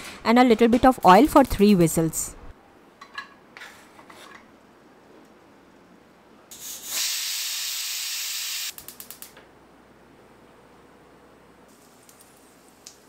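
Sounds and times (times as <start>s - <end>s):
pressure cooker whistle hissing: 6.6s - 8.7s.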